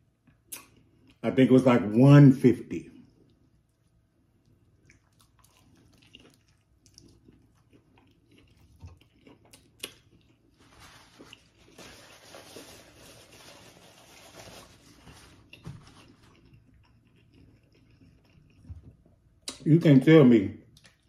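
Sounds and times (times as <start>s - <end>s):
man chewing food: 0.0s - 1.2s, 3.0s - 19.6s, 20.6s - 21.0s
paper napkin rustling: 10.6s - 16.3s.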